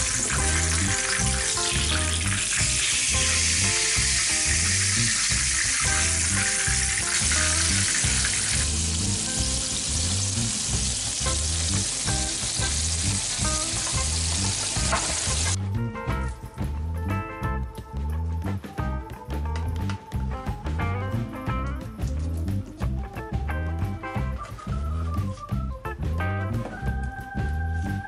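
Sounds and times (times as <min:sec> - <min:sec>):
meat sizzling in hot oil: 0:00.0 - 0:15.6
background music with low beat: 0:00.0 - 0:28.0.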